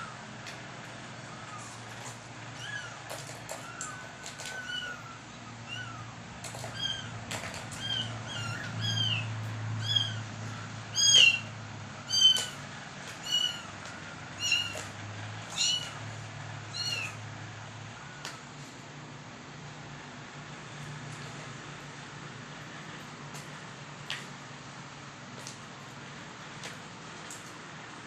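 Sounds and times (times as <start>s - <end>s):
paws batting plastic toy clicks: 1.9s - 4.9s, 6.4s - 9.5s
cat mewing: 2.6s - 10.3s, 12.1s - 13.8s, 14.4s - 16.0s, 16.7s - 17.2s.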